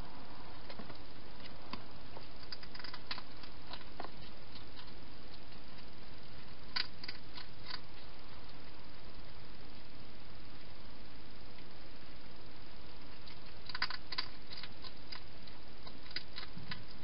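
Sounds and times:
steady hiss: 0.0s - 17.0s
hedgehogs crunching food: 0.5s - 9.3s, 12.7s - 17.0s.

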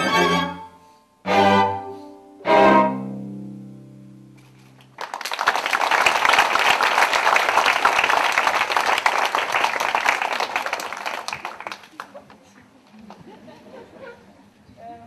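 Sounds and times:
string quartet chord: 0.0s - 4.6s
audience applauding: 4.8s - 13.2s.

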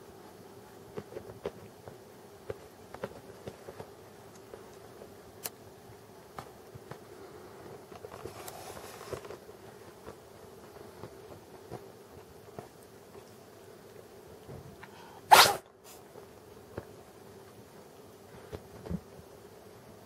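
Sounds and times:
fur and blanket rustle: 8.0s - 12.7s.

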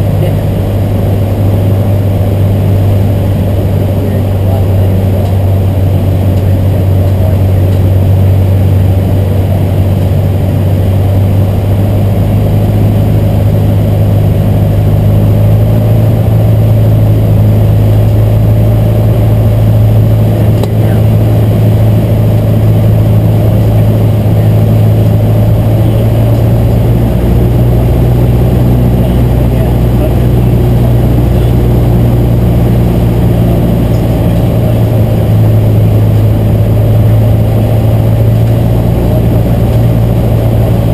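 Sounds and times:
aircraft engine and propeller drone: 0.0s - 40.9s.

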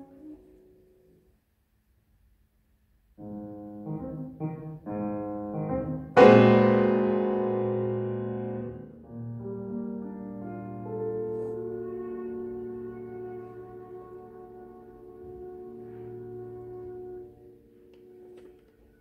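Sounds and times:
piano and woodwind chamber music: 0.0s - 1.3s, 3.2s - 19.0s
loud piano chord ringing: 3.8s - 11.4s.

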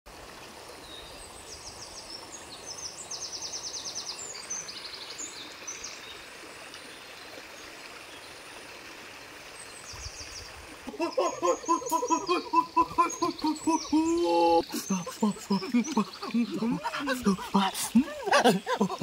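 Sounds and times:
high rapid trilling calls: 10.9s - 19.0s.

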